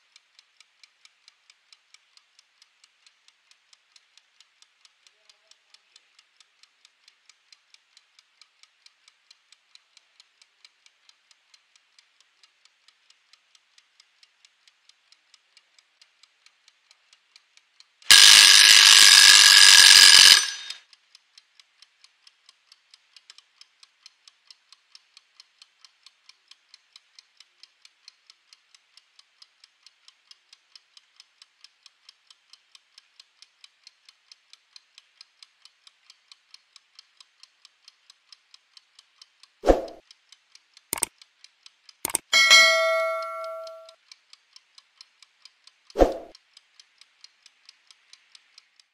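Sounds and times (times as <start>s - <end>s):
kitchen timer ticking: 0.0s - 48.9s
timer bell ringing: 42.1s - 43.9s.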